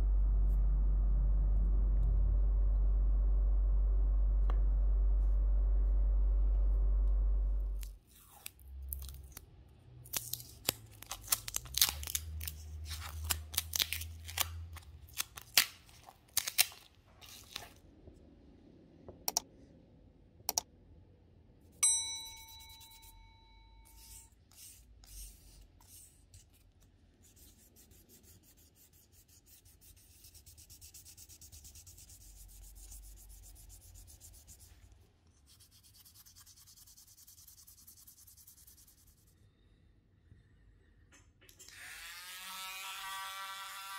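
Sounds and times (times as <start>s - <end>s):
bell-like chime: 21.8s - 24.0s
sandpaper rasping: 23.9s - 26.6s, 27.2s - 34.9s, 35.5s - 39.3s.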